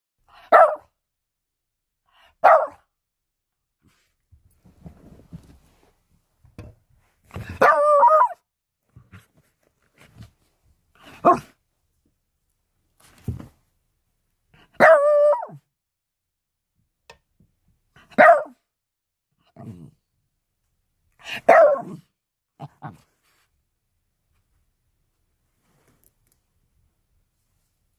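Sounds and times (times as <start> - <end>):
small dog barking: 0.4 - 1.0, 2.4 - 2.9, 7.6 - 8.4, 11.2 - 11.6, 14.8 - 15.6, 18.1 - 18.6, 21.2 - 23.0.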